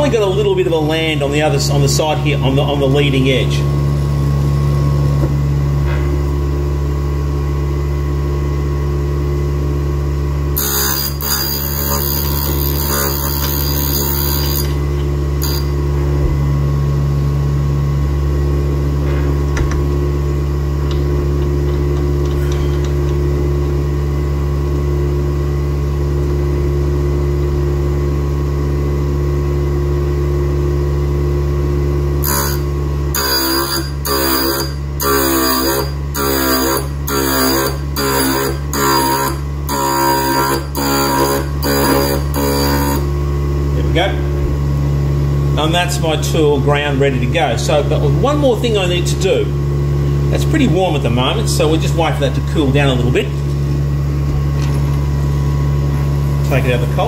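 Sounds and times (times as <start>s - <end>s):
grinder motor humming: 2.1s - 27.5s, 31.5s - 45.7s
wheel grinding steel: 10.6s - 15.8s, 32.2s - 43.1s.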